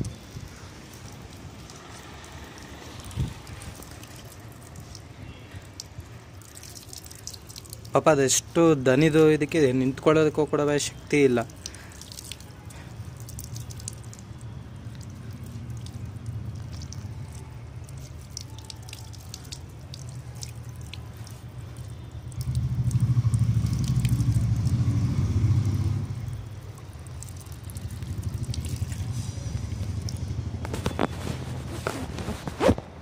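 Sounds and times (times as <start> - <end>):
water drips: 0.0 - 31.9
tap water splashing: 11.4 - 24.9, 26.6 - 31.6.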